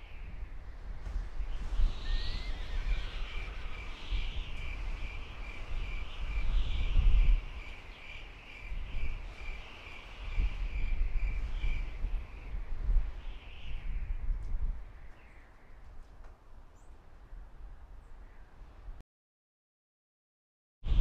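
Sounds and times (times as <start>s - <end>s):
insect chirping: 2.0s - 11.9s.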